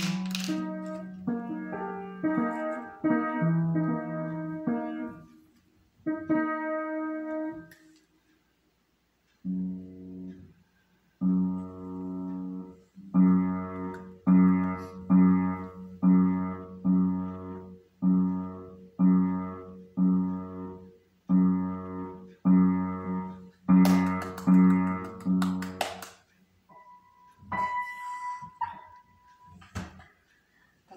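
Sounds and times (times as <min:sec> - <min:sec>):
piano chords struck: 0:11.2 - 0:25.8, 0:26.7 - 0:29.6.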